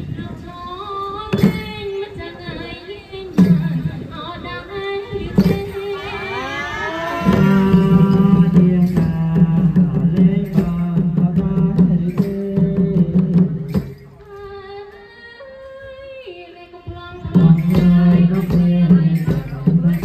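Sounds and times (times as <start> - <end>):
percussion strikes: 1.3 - 1.8, 5.4 - 5.9, 6.9 - 14.3, 17.3 - 20.0.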